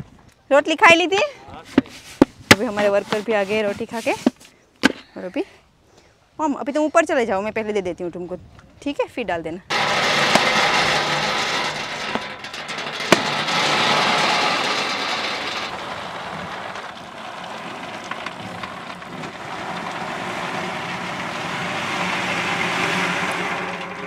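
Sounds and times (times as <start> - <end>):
seeds rattling on metal: 9.7 - 24.0.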